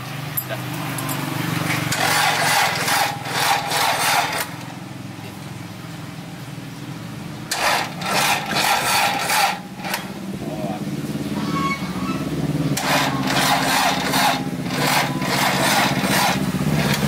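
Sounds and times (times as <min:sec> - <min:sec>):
starter motor cranking: 0:01.8 - 0:04.7, 0:07.5 - 0:10.2, 0:12.8 - 0:17.0.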